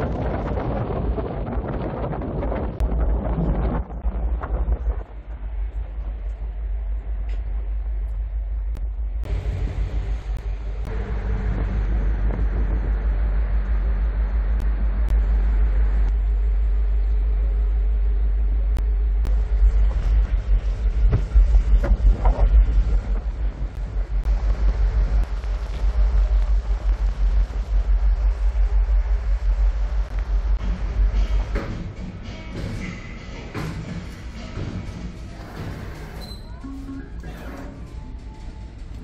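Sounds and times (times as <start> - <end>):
wind buffeting microphone: 0.0 - 16.2, 19.3 - 31.2
ship engines rumbling: 0.0 - 39.0.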